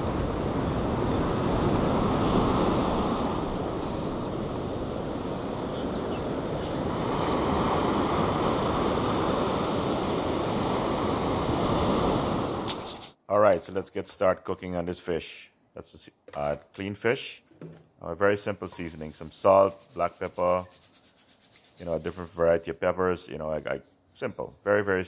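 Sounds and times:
ocean surf washing: 0:00.0 - 0:13.1.

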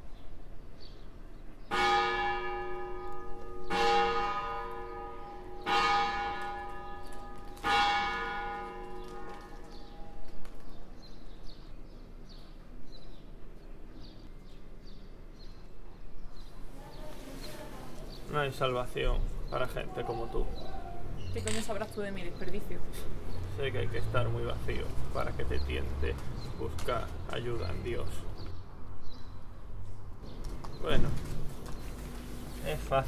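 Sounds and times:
church bell tolling: 0:01.7 - 0:10.2.

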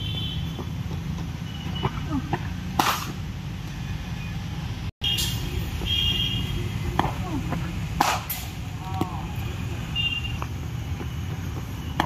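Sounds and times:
cricket bat hitting ball: 0:08.0 - 0:08.5.

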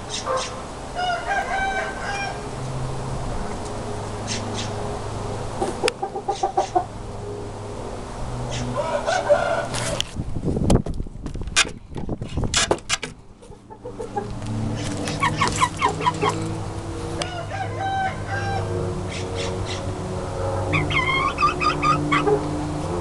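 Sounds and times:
chickens clucking: 0:05.6 - 0:06.9, 0:13.4 - 0:16.6, 0:20.6 - 0:22.5.

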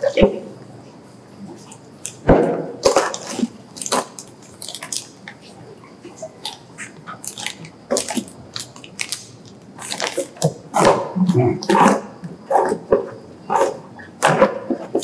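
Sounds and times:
plastic bags and paper crinkling: 0:07.2 - 0:10.5.

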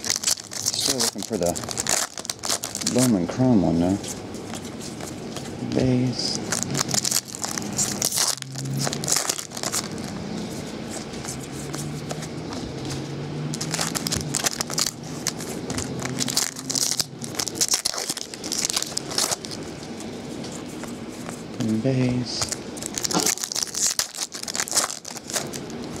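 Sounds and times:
foil packs tearing and crinkling: 0:00.0 - 0:03.7, 0:06.5 - 0:10.2, 0:13.5 - 0:19.7, 0:22.4 - 0:26.0.

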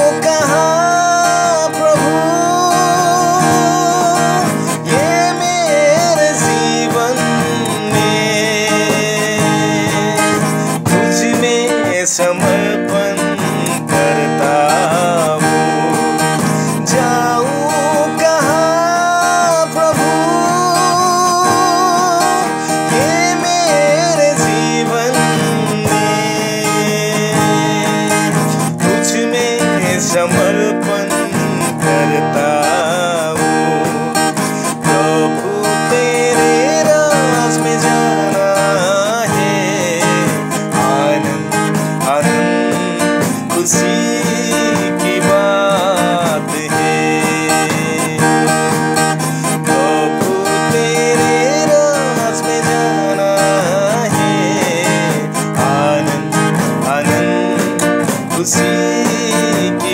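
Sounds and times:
acoustic guitar strumming: 0:00.0 - 0:59.9
man singing with vibrato: 0:00.0 - 0:59.9.

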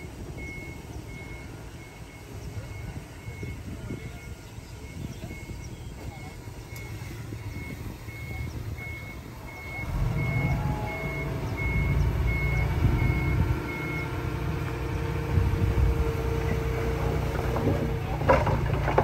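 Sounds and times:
reversing alarm beeping: 0:00.0 - 0:14.7
diesel engine running: 0:00.0 - 0:19.0
sharp knocks and clatter: 0:17.3 - 0:19.0.

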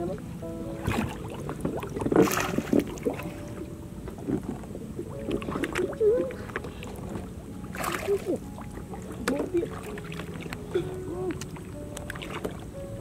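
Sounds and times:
water lapping against plants: 0:00.7 - 0:13.0
small plops and clicks: 0:05.2 - 0:06.8, 0:09.2 - 0:10.7, 0:11.3 - 0:12.6.

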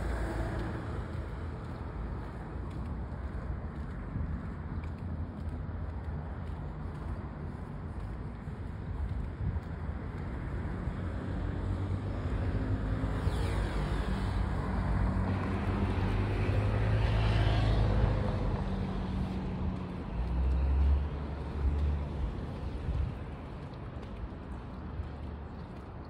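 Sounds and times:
car passing: 0:00.0 - 0:02.3
low traffic rumble: 0:00.0 - 0:26.0.

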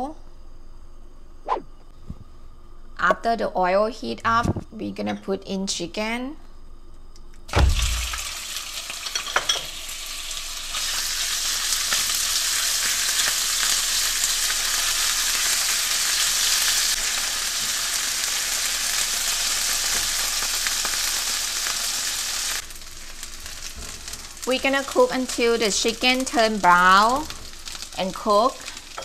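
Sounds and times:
chicken sizzling in oil: 0:07.5 - 0:29.0.

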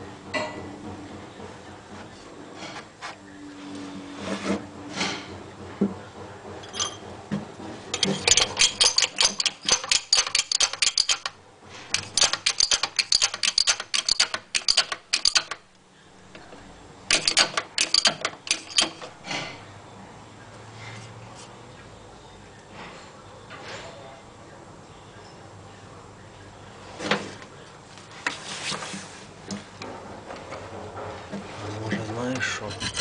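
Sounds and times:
metal parts scraping and knocking: 0:06.6 - 0:07.1, 0:07.9 - 0:15.7, 0:16.3 - 0:19.6, 0:31.9 - 0:33.0
ratchet wrench clicking: 0:08.0 - 0:15.6, 0:17.1 - 0:19.1.

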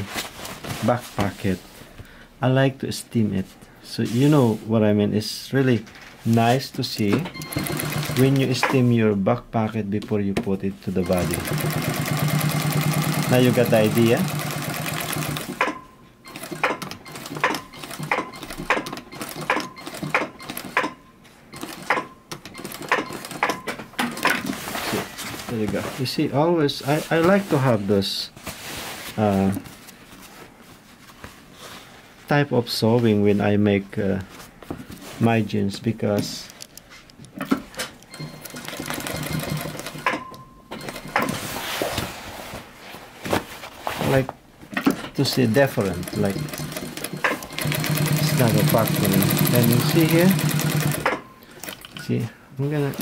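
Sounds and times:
sewing machine whine: 0:07.4 - 0:08.4, 0:11.0 - 0:20.7, 0:38.1 - 0:41.3, 0:45.8 - 0:51.8
sewing machine stitching clicks: 0:07.4 - 0:08.8, 0:46.0 - 0:52.0.

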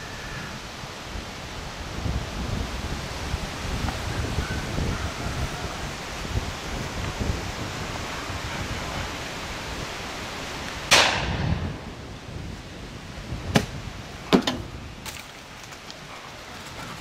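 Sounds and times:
wind on microphone: 0:00.0 - 0:17.0
shotgun shots: 0:10.9 - 0:11.5.

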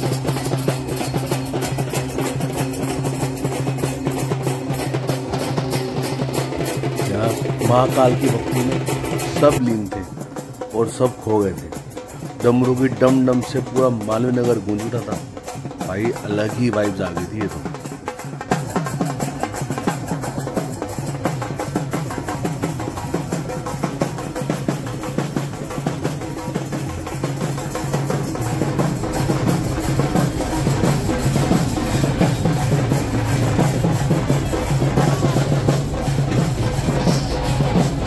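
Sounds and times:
fast drumming: 0:00.0 - 0:38.0.

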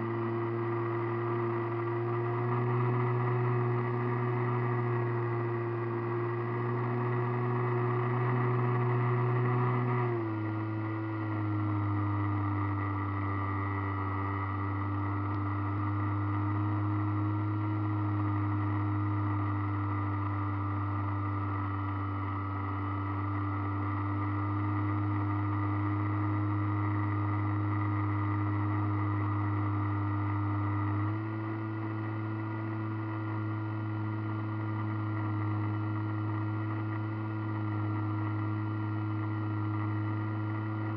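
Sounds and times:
model airplane motor and propeller: 0:00.0 - 0:40.9.

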